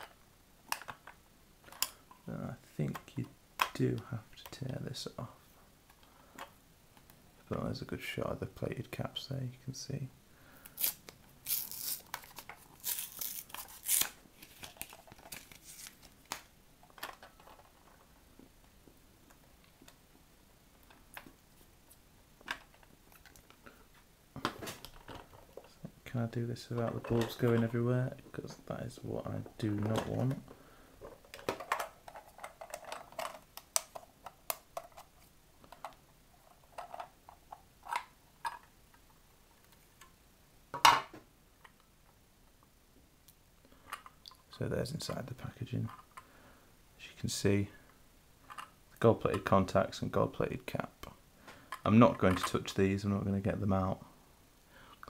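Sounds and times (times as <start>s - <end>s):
plastic crinkling: 10.8s - 16.5s
paper tearing: 12.8s - 14.2s
plastic case clicking and crackling: 31.0s - 36.0s.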